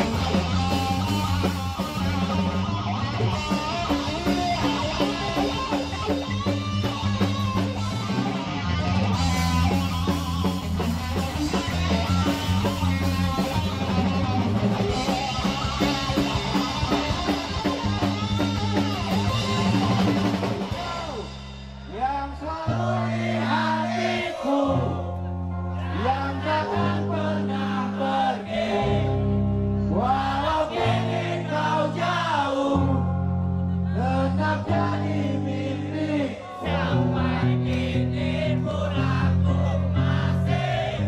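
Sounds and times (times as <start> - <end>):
punk rock band playing live: 0.0 - 41.0
loud singing: 19.1 - 33.2, 33.9 - 41.0.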